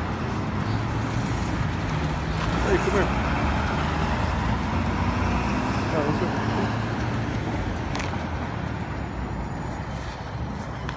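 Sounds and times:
low rumble of road traffic: 0:00.0 - 0:10.9.

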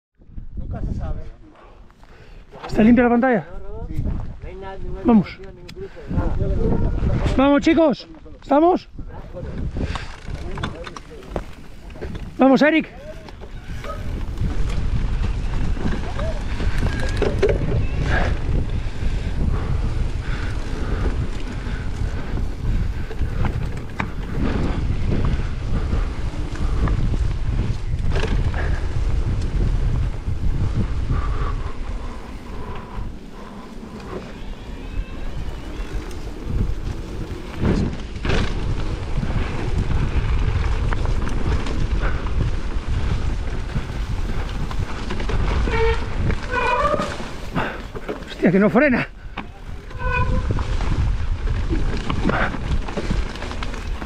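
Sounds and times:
wind buffeting microphone: 0:00.2 - 0:54.0
bike knocks and rattles: 0:09.9 - 0:12.4, 0:13.0 - 0:18.7, 0:35.6 - 0:48.4, 0:49.3 - 0:54.0.

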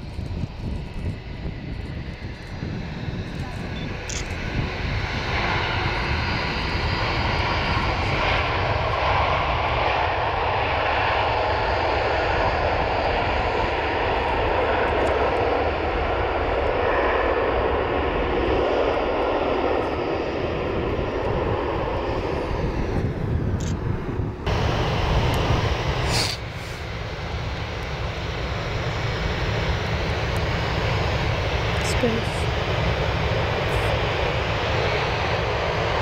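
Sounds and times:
jet engines roaring: 0:00.0 - 0:36.0.

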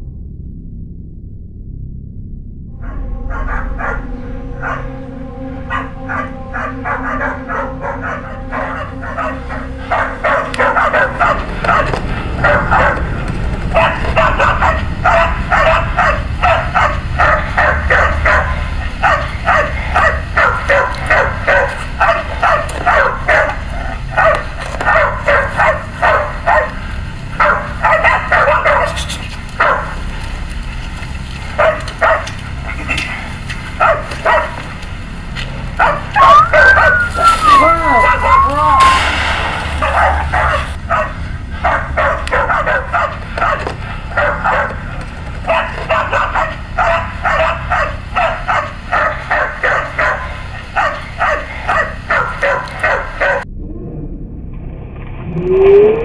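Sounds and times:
dog barking rapidly: 0:05.7 - 0:26.8, 0:27.4 - 0:30.0, 0:31.6 - 0:32.4, 0:33.7 - 0:34.6, 0:35.8 - 0:39.2, 0:39.8 - 0:53.4.

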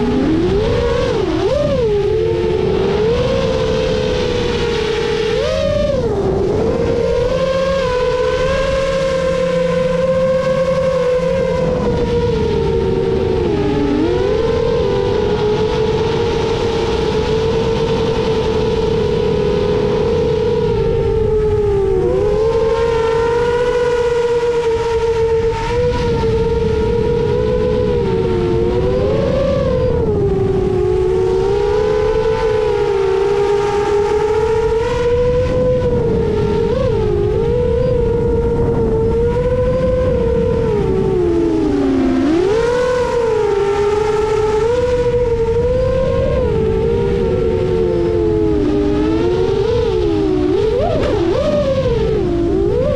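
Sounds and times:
drone motors whining: 0:00.0 - 0:52.9
wind rumble: 0:00.0 - 0:52.9.

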